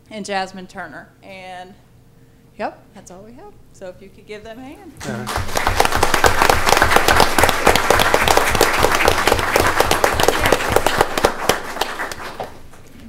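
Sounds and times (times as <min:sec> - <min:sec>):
audience applauding: 0:05.0 - 0:12.8.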